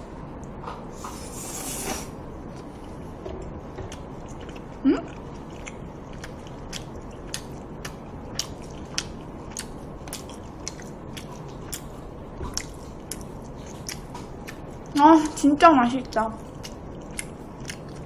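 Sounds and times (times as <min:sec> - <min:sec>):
steady hiss: 0:01.0 - 0:02.2
person chewing food: 0:01.0 - 0:15.0, 0:16.1 - 0:18.0.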